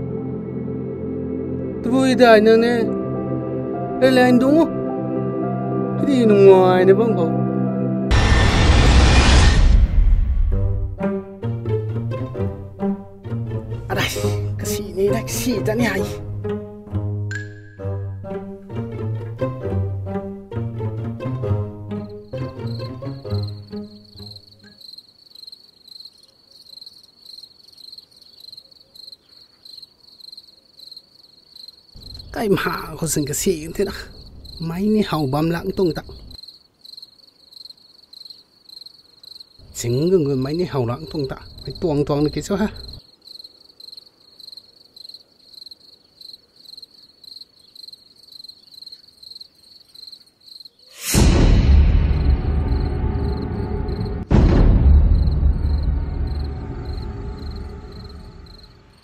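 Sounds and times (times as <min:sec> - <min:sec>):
dramatic music sting: 0:07.4 - 0:11.1, 0:51.0 - 0:59.0
crickets chirping: 0:21.2 - 0:51.2, 0:52.0 - 0:59.0
deep rumble: 0:51.2 - 0:59.0.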